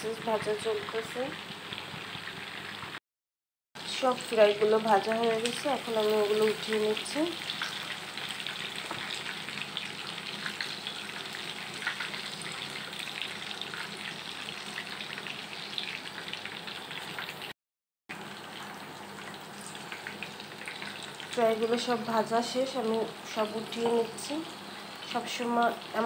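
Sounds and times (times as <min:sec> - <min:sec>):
chicken deep-frying in oil: 0:00.0 - 0:03.0, 0:03.8 - 0:26.0.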